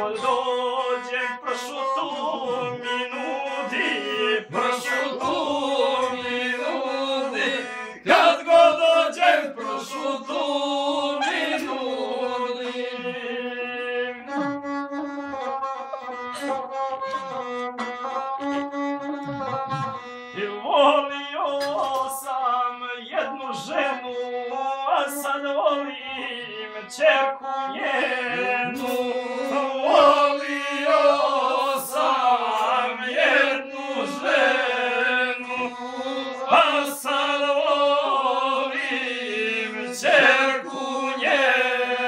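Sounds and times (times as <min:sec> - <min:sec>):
bowed string melody: 0:00.0 - 0:21.8.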